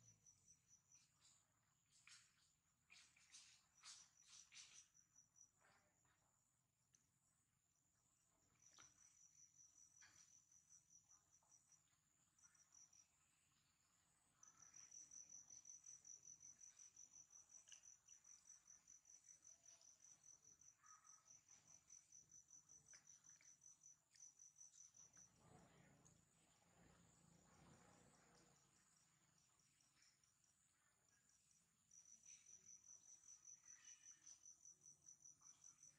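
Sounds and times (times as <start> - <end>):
high-pitched insect chirping: 29.3 - 35.9.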